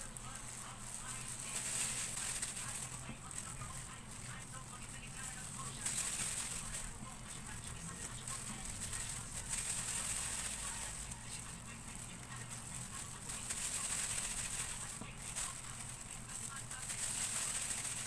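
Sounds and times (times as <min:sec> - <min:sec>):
plastic gloves crinkling: 0:00.0 - 0:18.0
steady hiss and hum: 0:00.0 - 0:18.0.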